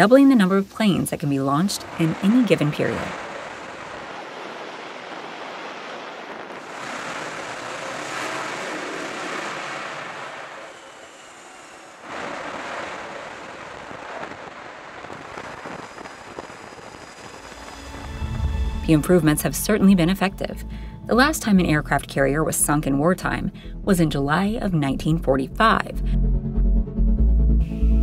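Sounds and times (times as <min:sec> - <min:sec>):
jet engine roar: 0:00.0 - 0:20.4.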